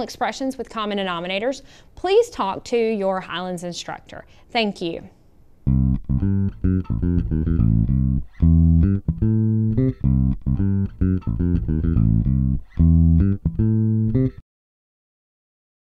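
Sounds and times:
instrumental music with plucked notes: 5.7s - 14.4s.

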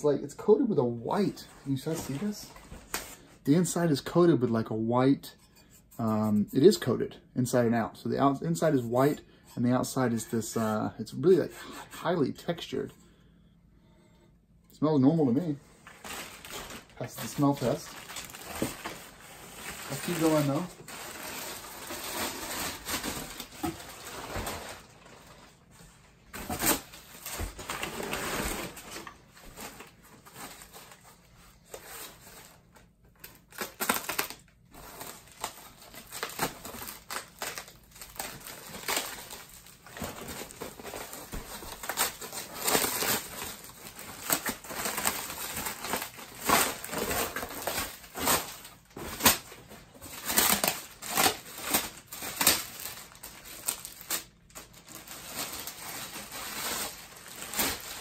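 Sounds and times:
packing material rustling: 0.3s - 3.8s, 15.5s - 58.0s.

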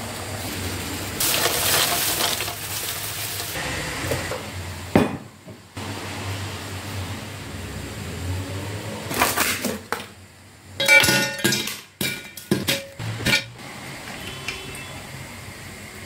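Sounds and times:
ice cubes clinking in glass pitcher: 1.2s - 3.6s.

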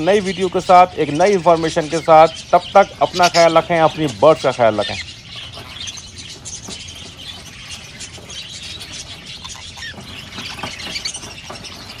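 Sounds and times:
budgerigars chirping and squawking: 0.0s - 12.0s.

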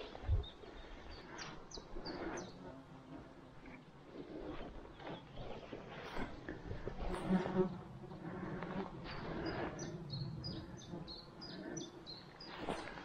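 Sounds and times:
insect buzzing: 7.0s - 13.0s.

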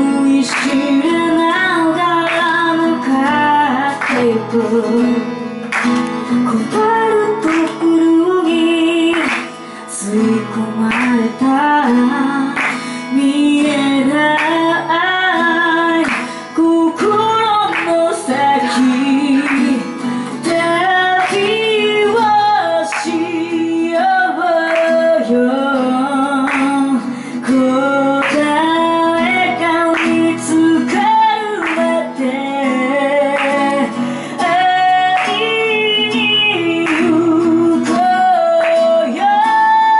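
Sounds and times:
acoustic guitar strumming: 0.0s - 39.9s
woman singing: 0.0s - 39.9s.

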